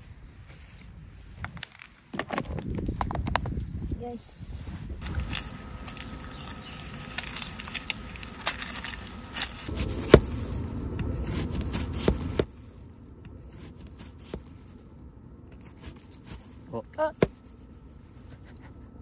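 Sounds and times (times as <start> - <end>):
plastic packaging crinkling: 5.0 - 14.9.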